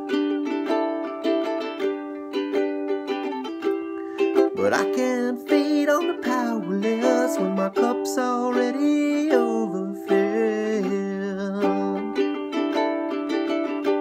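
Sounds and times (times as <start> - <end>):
ukulele strumming chords: 0.0 - 14.0
man singing: 4.2 - 12.8.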